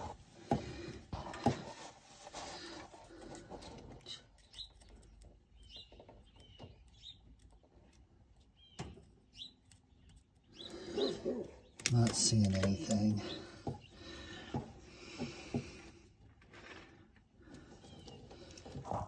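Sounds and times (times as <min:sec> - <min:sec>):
small birds chirping: 0:02.3 - 0:16.2, 0:17.4 - 0:19.0.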